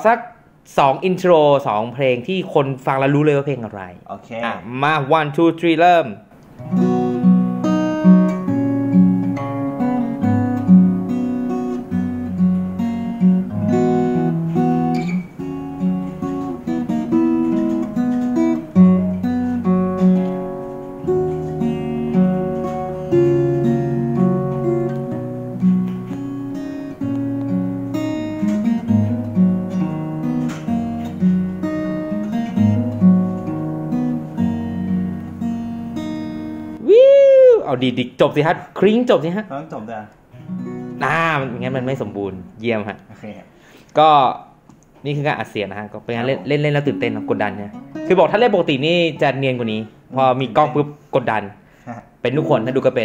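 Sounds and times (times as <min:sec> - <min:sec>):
fingerstyle acoustic guitar: 0:06.4 - 0:36.8, 0:40.3 - 0:41.9, 0:46.3 - 0:49.3.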